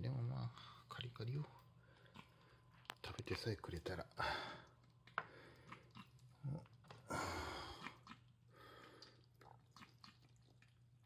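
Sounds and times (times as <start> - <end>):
kitten chewing: 4.7 - 7.0, 7.8 - 8.4.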